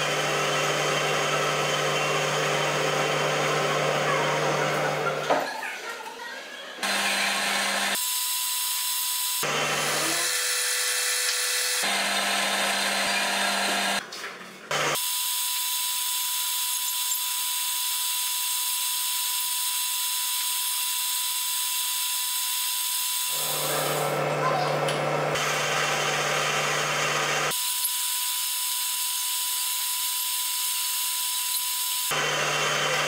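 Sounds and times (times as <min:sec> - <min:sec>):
metal lathe whirring with high whine: 0:06.8 - 0:14.0, 0:14.9 - 0:33.0.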